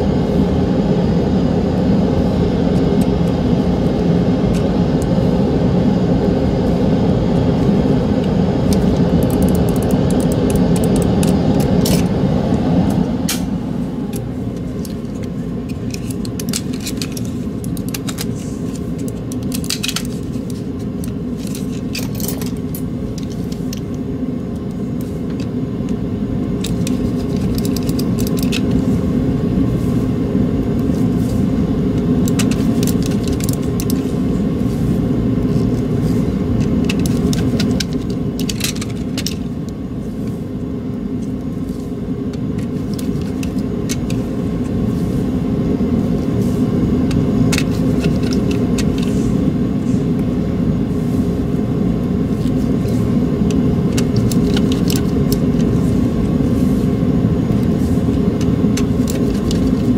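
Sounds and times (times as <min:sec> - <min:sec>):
low rumbling hum: 0:00.0 - 0:59.9
plastic parts clicking and tapping: 0:14.1 - 0:23.9, 0:26.6 - 0:28.8, 0:32.0 - 0:34.0, 0:36.6 - 0:39.5, 0:47.1 - 0:49.2, 0:53.5 - 0:55.8, 0:58.1 - 0:59.9.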